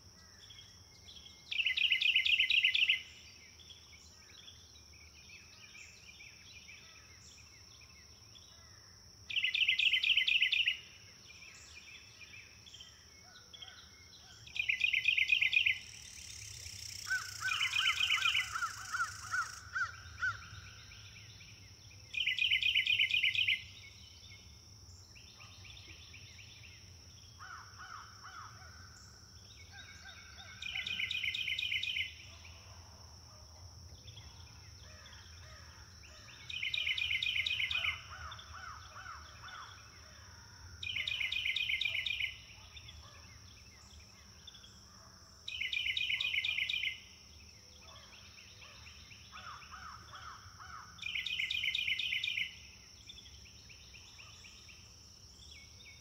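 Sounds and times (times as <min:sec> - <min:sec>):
quieter bird calls: 0:09.3 - 0:32.8, 0:34.1 - 0:44.8, 0:45.5 - 0:56.0.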